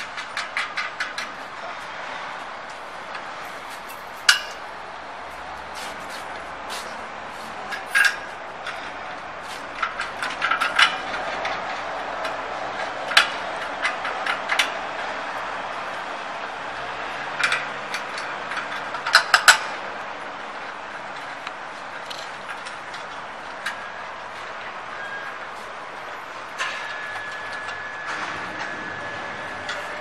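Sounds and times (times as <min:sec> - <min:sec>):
metal clicks and knocks: 0:00.0 - 0:01.4, 0:09.8 - 0:14.8, 0:17.4 - 0:19.8.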